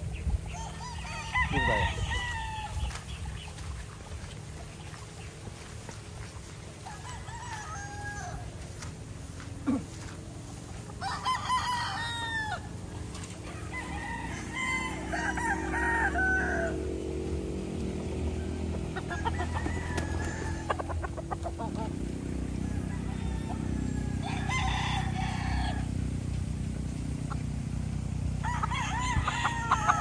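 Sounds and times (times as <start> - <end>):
roosters crowing: 0.4 - 3.5, 6.4 - 30.0
steady low hum: 8.2 - 11.0.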